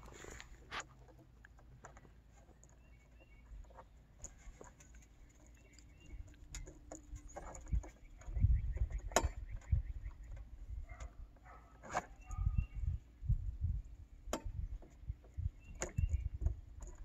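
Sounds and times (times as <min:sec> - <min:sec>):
bird chirps: 0:02.5 - 0:03.8, 0:05.2 - 0:06.8, 0:07.6 - 0:10.5, 0:12.1 - 0:13.0, 0:15.4 - 0:16.4.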